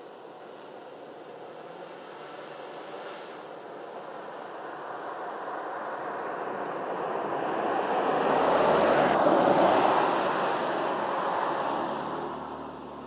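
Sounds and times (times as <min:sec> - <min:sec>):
pickup truck driving past: 0:04.7 - 0:13.0.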